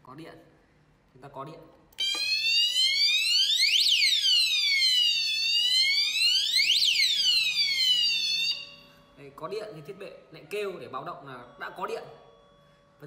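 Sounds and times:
electronic alarm siren wailing: 2.0 - 8.9.

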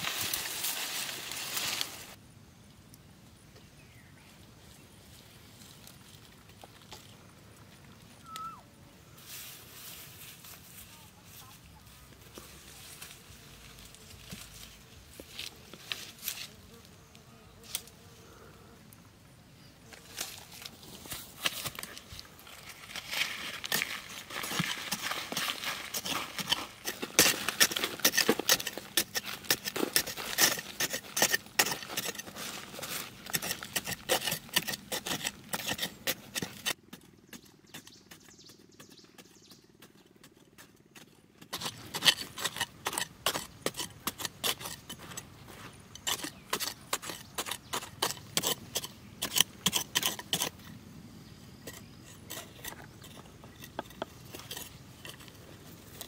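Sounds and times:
knife scraping dry earth: 0.0 - 2.2, 9.1 - 11.6, 12.3 - 17.0, 17.6 - 18.0, 19.8 - 56.0.

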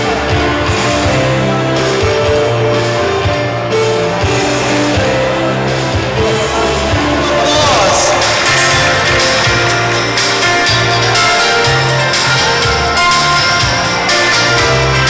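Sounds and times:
music with held notes and bass: 0.0 - 15.0.

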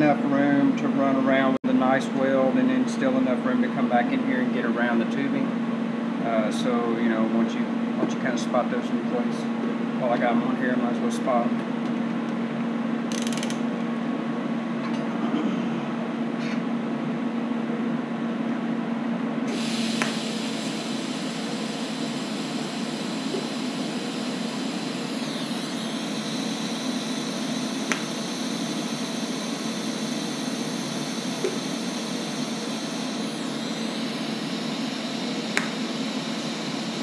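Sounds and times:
welding arc hissing: 19.5 - 37.0
clicks: 27.9 - 28.1.

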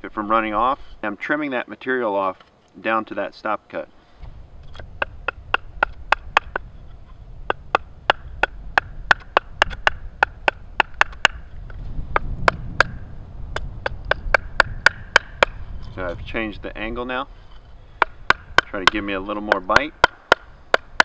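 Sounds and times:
stick knocking on knife spine: 4.6 - 6.7, 7.5 - 15.6, 18.0 - 21.0.

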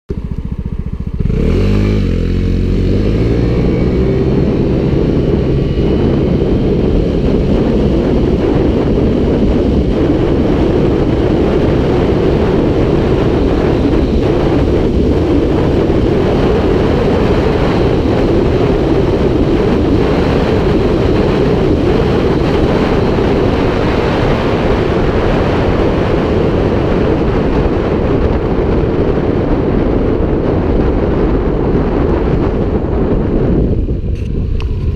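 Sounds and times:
scooter engine accelerating: 0.1 - 34.9.

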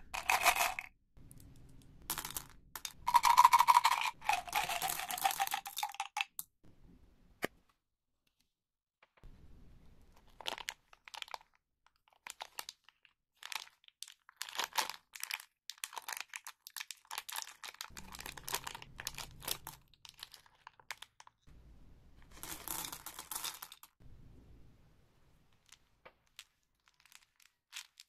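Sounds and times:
candy wrappers crinkling: 3.1 - 6.1, 10.2 - 21.5, 25.6 - 28.0.

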